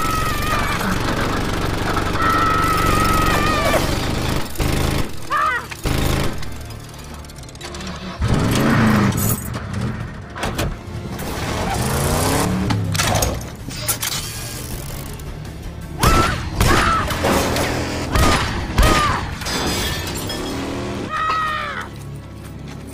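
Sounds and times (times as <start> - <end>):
car engine: 0.0 - 16.0, 16.6 - 21.1
action film music: 0.0 - 22.9
sharp bangs and impacts: 15.9 - 21.1.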